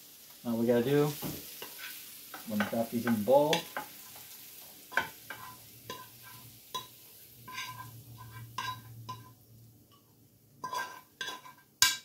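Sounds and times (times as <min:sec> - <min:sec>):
frying pan clinking on ceramic bowl: 0:06.7 - 0:10.0, 0:10.6 - 0:12.0.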